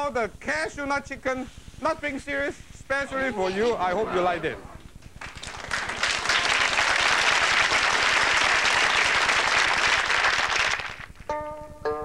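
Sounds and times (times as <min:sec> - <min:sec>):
studio audience applauding: 0:05.0 - 0:11.3.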